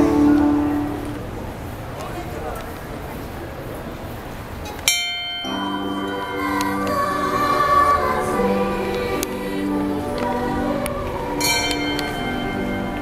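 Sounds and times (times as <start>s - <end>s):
recorded choral music: 0.0s - 2.0s, 5.4s - 13.0s
brass bell ringing: 4.9s - 6.6s, 11.4s - 13.0s.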